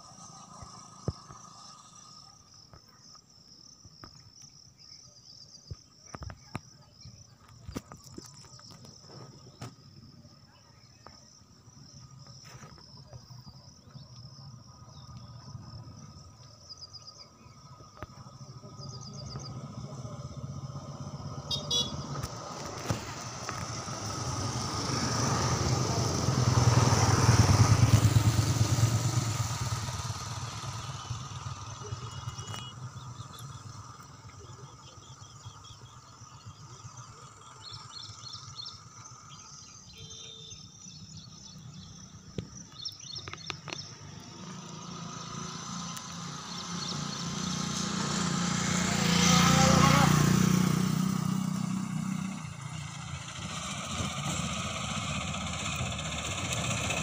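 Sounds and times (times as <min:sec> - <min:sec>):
insects chirring: 0:00.0 - 0:57.0
vehicle passing by: 0:18.4 - 0:39.6, 0:43.9 - 0:57.0.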